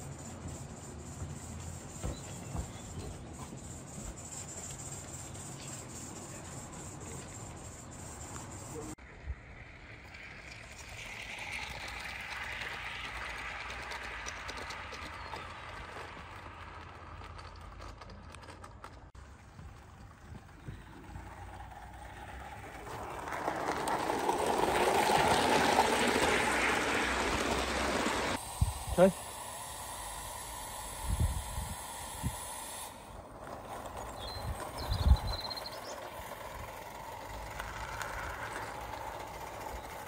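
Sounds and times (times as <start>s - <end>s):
steam hissing: 0.0s - 17.3s, 20.5s - 34.8s
model train wheel noise: 0.0s - 40.0s.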